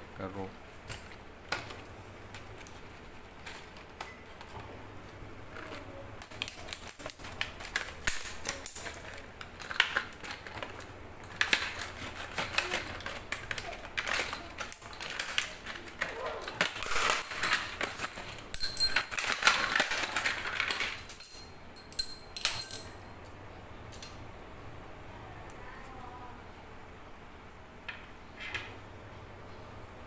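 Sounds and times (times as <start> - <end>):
scissors snipping plastic: 5.5 - 16.8.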